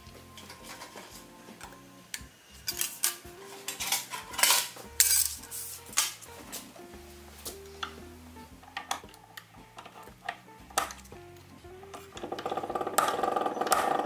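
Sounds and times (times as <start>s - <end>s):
soft background music: 0.0s - 14.0s
metallic clinks of brass pieces: 2.7s - 6.2s.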